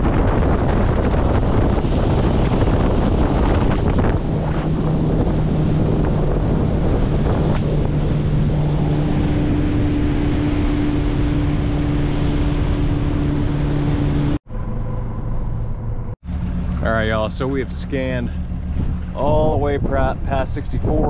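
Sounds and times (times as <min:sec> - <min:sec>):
water rushing past hull: 0:00.0 - 0:14.4
wind buffeting microphone: 0:00.0 - 0:15.2, 0:16.0 - 0:21.0
motorboat engine humming: 0:00.0 - 0:21.0.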